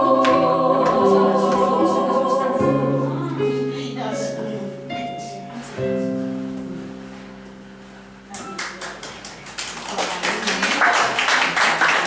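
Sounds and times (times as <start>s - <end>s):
electronic keyboard chord: 0.0s - 9.0s
audience clapping: 8.3s - 12.0s.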